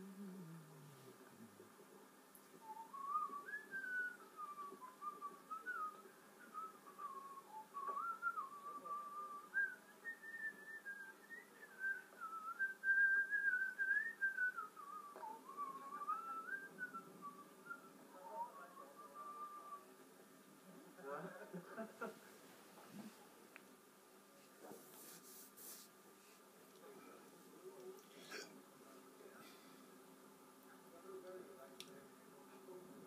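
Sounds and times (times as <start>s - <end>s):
person whistling a tune: 2.6s - 19.8s.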